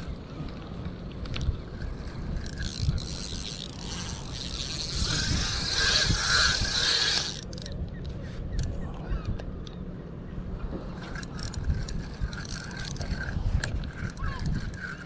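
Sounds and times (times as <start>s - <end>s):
fishing reel whirring and clicking: 0.0s - 7.9s, 10.9s - 15.0s.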